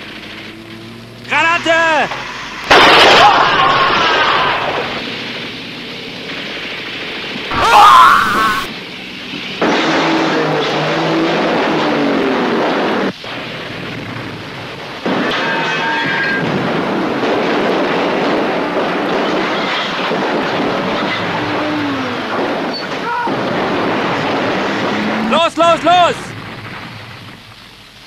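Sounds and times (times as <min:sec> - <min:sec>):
loud explosion: 0:02.7 - 0:05.0, 0:22.2 - 0:25.4
steady rumbling: 0:20.2 - 0:28.0.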